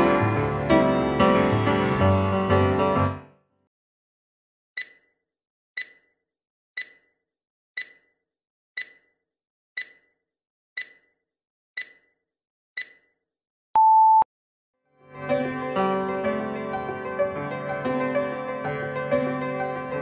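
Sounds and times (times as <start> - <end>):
timer ticking: 4.8 - 5.2, 5.8 - 6.2, 6.8 - 7.2, 7.8 - 8.2, 8.8 - 9.2, 9.8 - 10.2, 10.8 - 11.2, 11.8 - 12.2, 12.8 - 13.1
electronic beep: 13.8 - 14.2.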